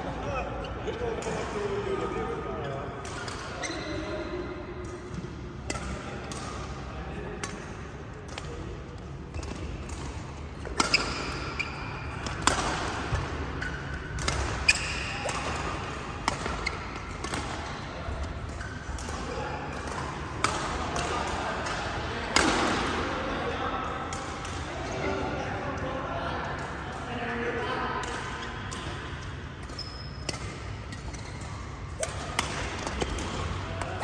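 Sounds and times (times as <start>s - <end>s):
shoes squeaking on court floor: 3.5s - 4.0s, 10.6s - 12.5s, 13.1s - 15.5s, 16.4s - 17.3s, 29.7s - 32.1s
rackets striking shuttlecock: 4.8s - 6.8s, 9.4s - 17.6s, 29.6s - 34.0s.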